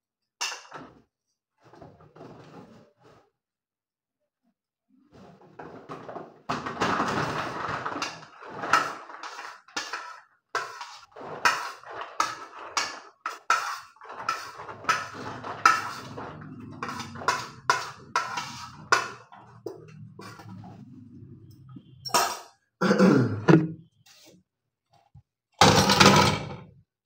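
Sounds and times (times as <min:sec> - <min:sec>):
utensil scraping plastic container: 0:06.9 - 0:21.7.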